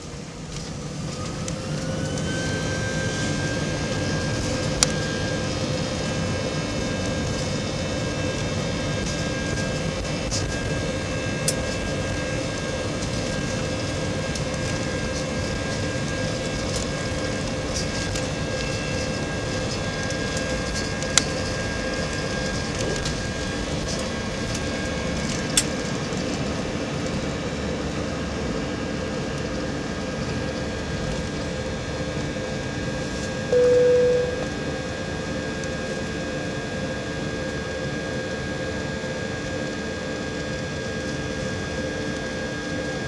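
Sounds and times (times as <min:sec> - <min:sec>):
jet engines rumbling and whining: 0:00.0 - 0:43.0.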